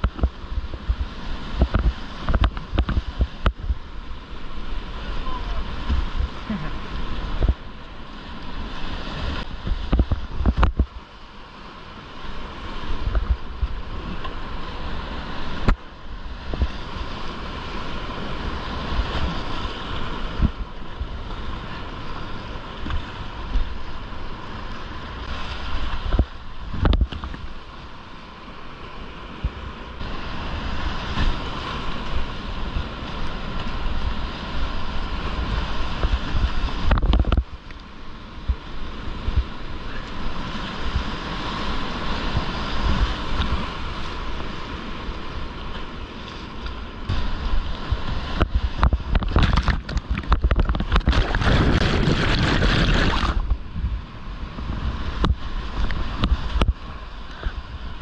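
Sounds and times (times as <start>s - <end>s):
wind buffeting microphone: 0.0s - 7.8s, 8.4s - 11.1s, 12.5s - 27.6s, 29.4s - 37.6s, 46.9s - 58.0s
rushing whitewater: 0.0s - 58.0s
sharp knocks or splashes: 48.4s - 53.5s.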